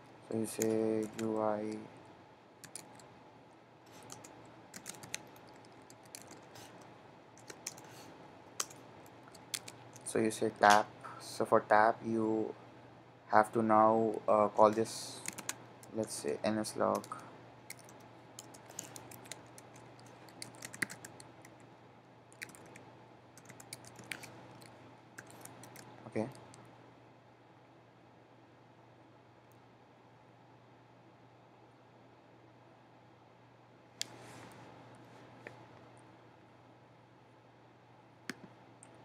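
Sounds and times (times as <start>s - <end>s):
keyboard typing: 0.4s - 1.8s, 2.6s - 3.1s, 3.9s - 8.0s, 8.6s - 10.1s, 14.7s - 16.0s, 16.9s - 21.6s, 22.3s - 22.8s, 23.4s - 26.6s.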